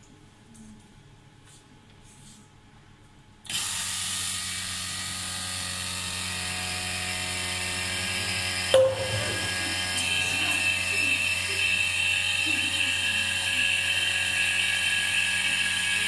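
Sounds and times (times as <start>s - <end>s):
vacuum pump humming and hissing: 3.5s - 16.0s
sharp knock: 8.8s - 9.5s.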